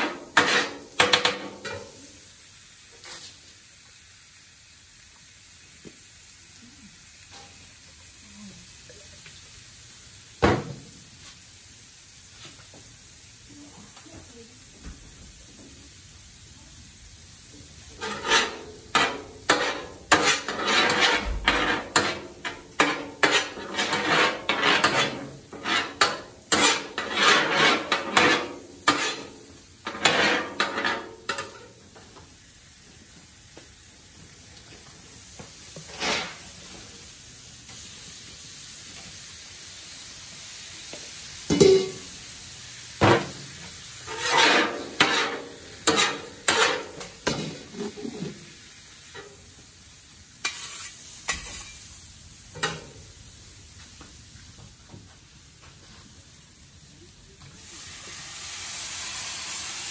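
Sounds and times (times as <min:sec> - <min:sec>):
metal spatulas scraping griddle: 0:00.0 - 0:01.9, 0:17.9 - 0:31.8, 0:35.9 - 0:36.4, 0:44.1 - 0:48.4, 0:50.4 - 0:51.8
food sizzling: 0:00.0 - 0:59.9.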